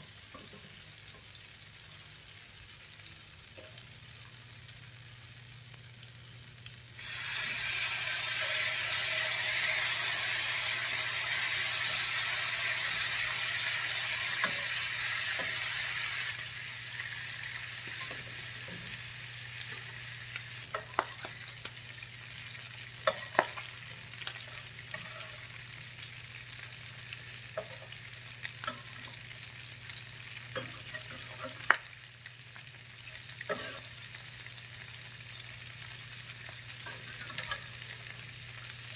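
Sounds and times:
chicken sizzling in a frying pan: 0:00.0 - 0:38.9
spatula scraping a pan: 0:24.3 - 0:25.6, 0:33.5 - 0:34.0.

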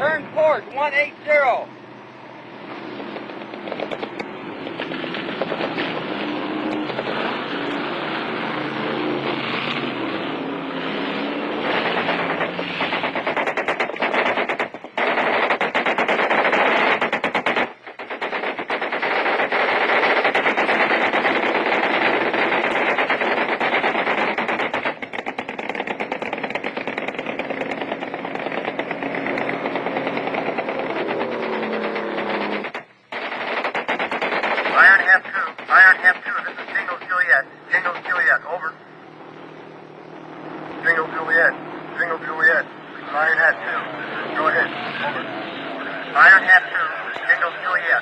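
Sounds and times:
boat engines running: 0:00.0 - 0:48.0
machine-gun fire: 0:03.0 - 0:10.1, 0:10.9 - 0:38.6.

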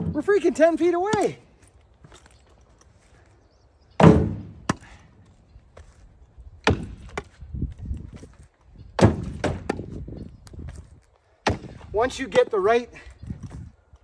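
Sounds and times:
firewood thudding into truck bed: 0:04.0 - 0:04.9, 0:06.6 - 0:07.3, 0:09.0 - 0:09.9, 0:11.4 - 0:11.8
knocks of wood on wood: 0:04.0 - 0:04.9, 0:06.6 - 0:07.4, 0:09.0 - 0:10.0, 0:11.4 - 0:12.5.

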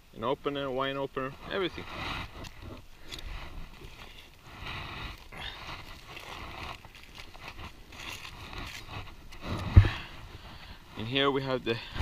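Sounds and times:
aluminium foil crinkling: 0:02.4 - 0:09.5.

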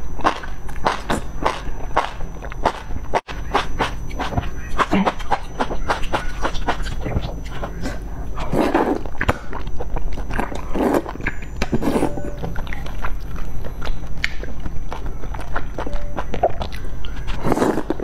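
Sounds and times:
wet chewing and mouth smacking: 0:00.2 - 0:18.0
person slurping noodles: 0:07.6 - 0:09.1, 0:10.7 - 0:11.1, 0:17.3 - 0:18.0.

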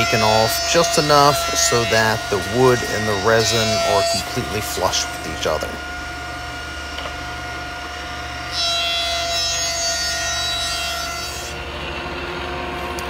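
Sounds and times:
planer cutting wood: 0:00.0 - 0:13.0
planer motor whine: 0:00.0 - 0:13.0.

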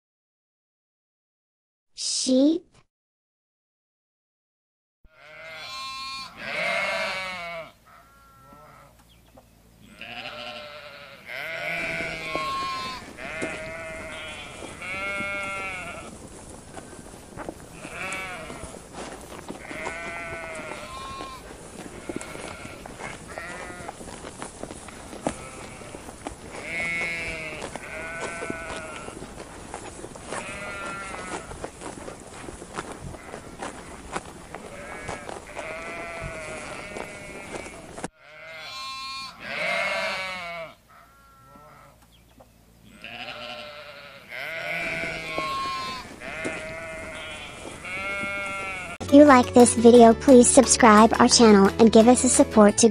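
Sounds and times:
sheep bleating: 0:05.1 - 0:09.0, 0:09.8 - 0:16.2, 0:17.7 - 0:24.2, 0:24.9 - 0:31.6, 0:32.8 - 0:42.0, 0:42.8 - 0:49.0.

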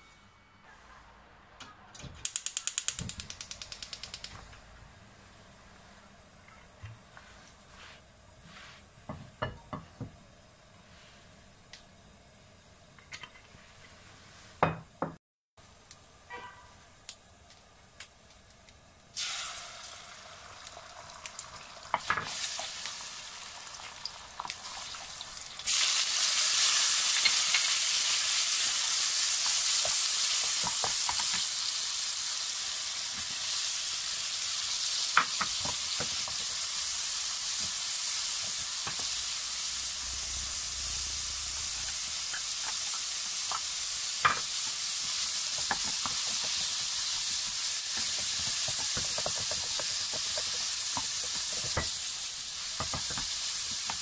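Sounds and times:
food sizzling in hot oil: 0:19.1 - 0:54.0
spatula stirring and tapping pan: 0:41.9 - 0:52.0, 0:52.7 - 0:54.0.

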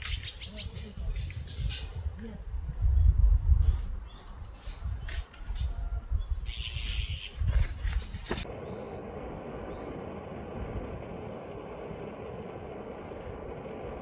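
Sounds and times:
wind buffeting microphone: 0:00.0 - 0:14.0
steady hiss: 0:08.4 - 0:14.0.

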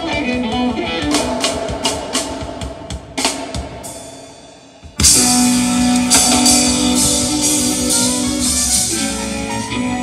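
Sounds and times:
drum kit: 0:00.0 - 0:10.0
reggae band playing: 0:00.0 - 0:10.0.

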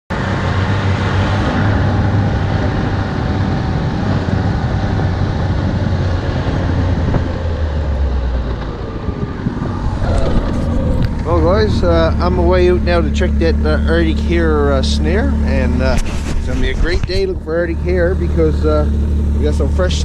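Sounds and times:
snowmobile engine running: 0:08.2 - 0:20.0.

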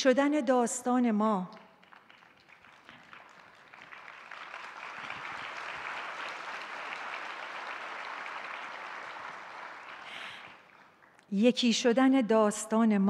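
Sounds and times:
audience applauding: 0:01.6 - 0:11.2.

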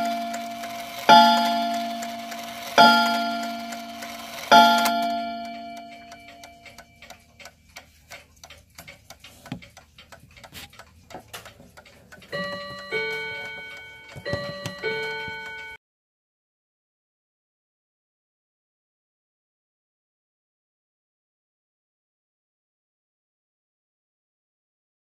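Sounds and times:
hammer striking gong rod: 0:00.0 - 0:06.6
clock ticking: 0:00.0 - 0:15.8.

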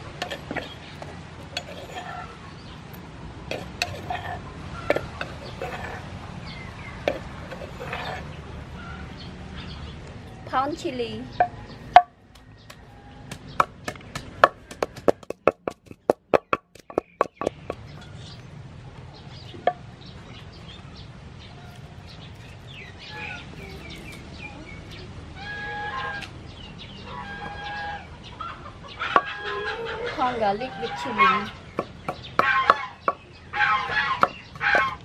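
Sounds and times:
chickens calling: 0:00.0 - 0:10.0, 0:11.3 - 0:18.4, 0:19.1 - 0:35.0
pestle pounding in wooden mortar: 0:03.5 - 0:06.0, 0:11.4 - 0:18.1, 0:31.5 - 0:35.0.

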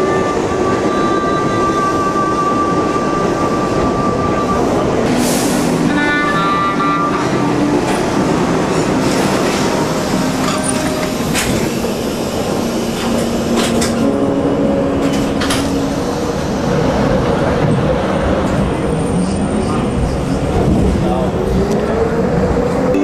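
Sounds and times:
subway train rumbling: 0:00.0 - 0:23.0.

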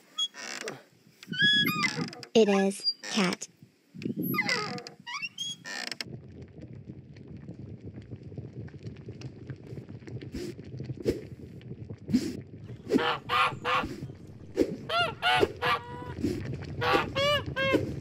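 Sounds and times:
geese honking: 0:12.8 - 0:14.0, 0:14.9 - 0:16.1, 0:16.8 - 0:17.8.

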